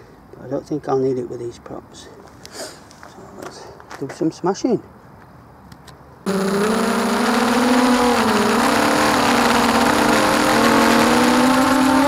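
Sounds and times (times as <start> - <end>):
drone motors buzzing: 6.3 - 12.0.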